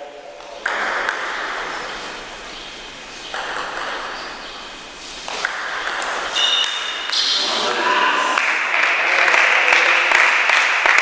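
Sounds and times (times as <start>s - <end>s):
hall noise hiss: 0.0s - 7.6s
table tennis ball clicking: 3.3s - 4.5s, 5.2s - 7.3s.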